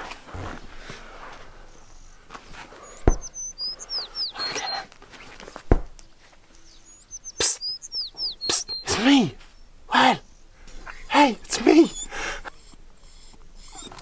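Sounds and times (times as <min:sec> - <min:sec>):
songbird whistling: 0:02.8 - 0:04.9, 0:06.6 - 0:11.0.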